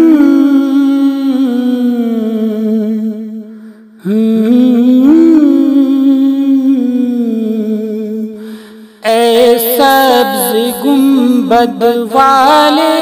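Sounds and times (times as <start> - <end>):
man humming a slow melody: 0.0 - 3.2, 4.0 - 8.3.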